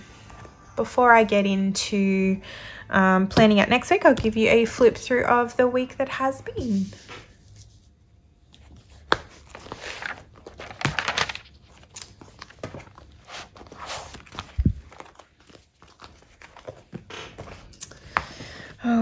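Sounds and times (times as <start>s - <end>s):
paper pages rustling: 8.5s - 18.2s.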